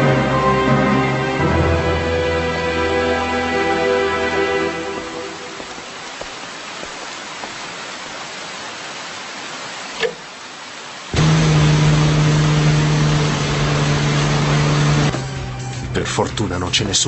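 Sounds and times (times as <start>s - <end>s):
background music: 0.0s - 5.8s, 13.2s - 17.0s
rain hissing: 0.0s - 15.9s
loud car engine: 11.2s - 16.0s.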